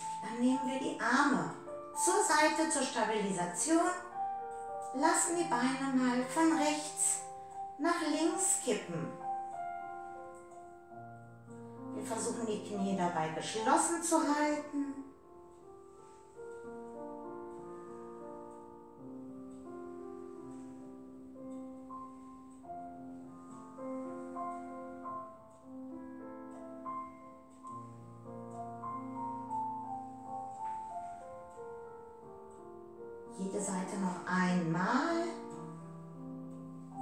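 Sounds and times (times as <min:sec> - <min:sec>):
soft piano music: 0:00.0 - 0:37.0.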